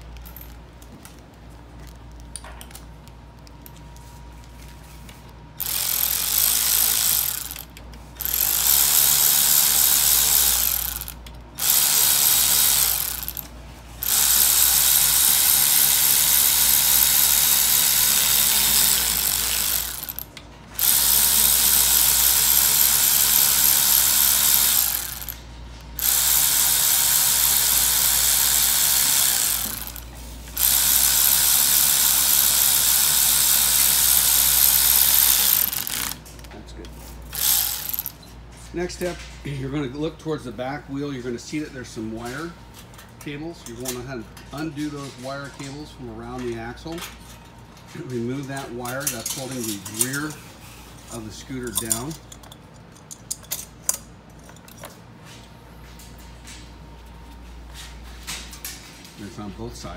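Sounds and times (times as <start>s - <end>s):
electric ratchet running: 5.6s - 36.2s, 37.3s - 38.2s.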